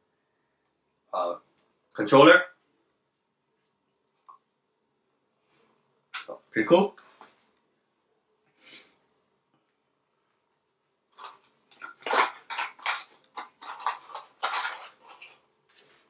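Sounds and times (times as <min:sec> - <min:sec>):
packaging rustling and crinkling: 0:11.2 - 0:15.9.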